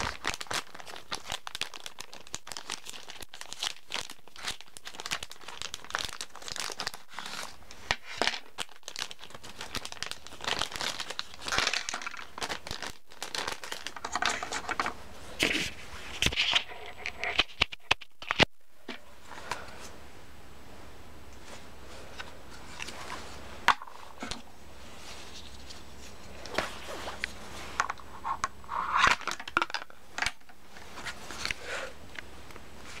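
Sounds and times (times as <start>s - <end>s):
rustling: 21.3s - 33.0s.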